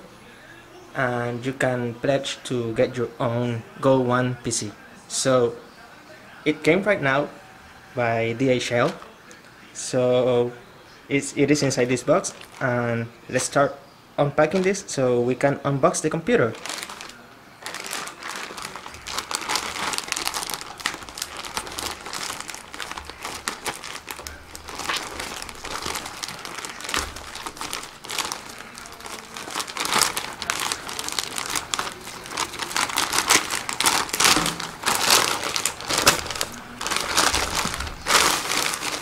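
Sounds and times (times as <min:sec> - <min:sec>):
plastic mailer bag crinkling: 0:11.6 - 0:13.6, 0:14.4 - 0:15.0, 0:16.3 - 0:39.0.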